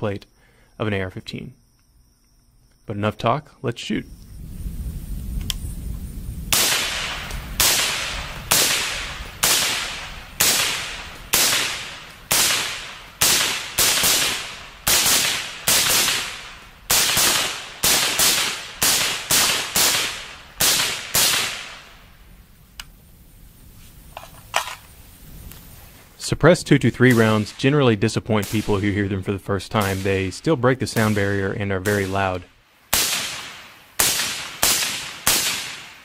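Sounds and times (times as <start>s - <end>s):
light clicks: 5.4s - 5.6s
suppressed rifle shots: 6.5s - 21.9s, 28.4s - 29.0s, 29.7s - 30.3s, 32.9s - 36.0s.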